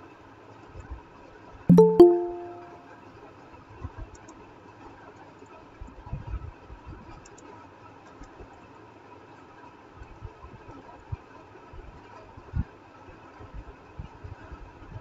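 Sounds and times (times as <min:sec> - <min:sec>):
notification chime: 0:01.7 - 0:02.9.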